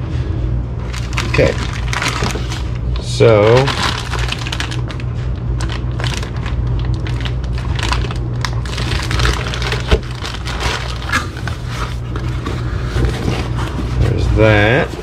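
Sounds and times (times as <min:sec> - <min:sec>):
steady low hum: 0:00.0 - 0:15.0
plastic bag crinkling: 0:00.8 - 0:13.8.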